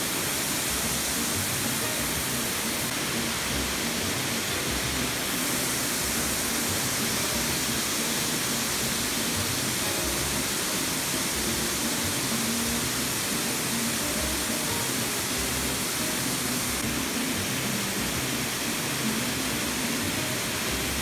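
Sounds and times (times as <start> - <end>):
rushing water: 0.0 - 21.0.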